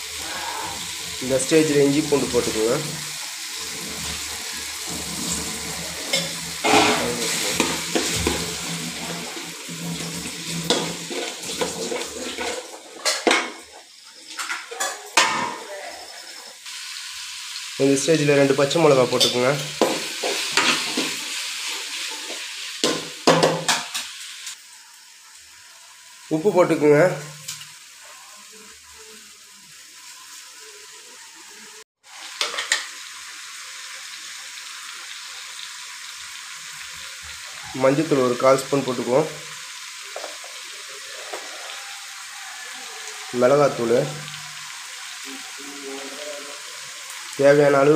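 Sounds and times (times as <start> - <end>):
frying sizzle: 0.0 - 47.9
metal spoon scraping pan: 4.8 - 13.6, 19.1 - 22.5.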